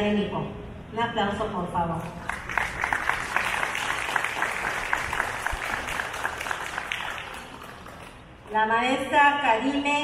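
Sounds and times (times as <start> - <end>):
audience applauding: 2.2 - 8.3.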